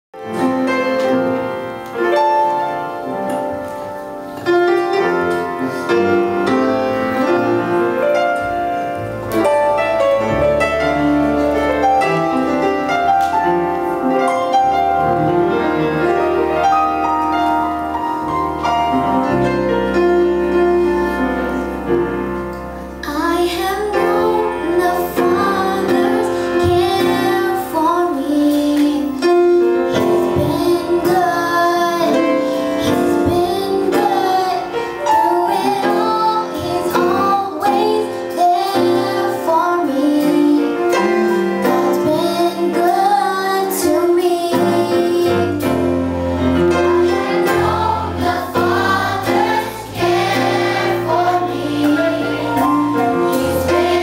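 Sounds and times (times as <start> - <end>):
band with guitars: 0.2 - 54.0
choir singing: 23.0 - 42.8, 46.4 - 54.0.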